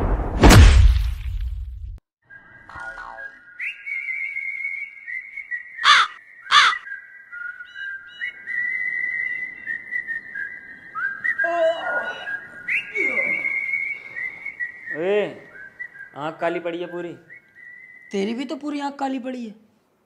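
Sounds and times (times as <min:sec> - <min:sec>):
high whistling tones: 0:02.2 - 0:18.2
harsh calls: 0:05.8 - 0:06.8, 0:11.0 - 0:15.8
man groaning: 0:11.4 - 0:12.2.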